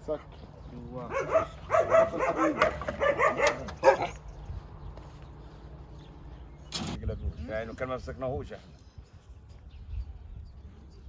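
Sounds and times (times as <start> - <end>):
dogs barking and yipping: 0.9 - 4.6.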